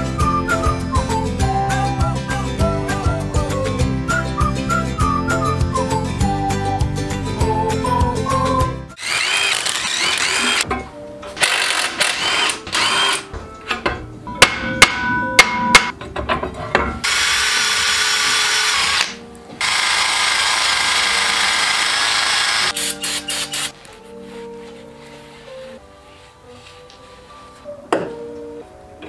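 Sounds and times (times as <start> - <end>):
cordless drill whirring: 9.0 - 10.6, 11.4 - 13.2, 17.0 - 23.7.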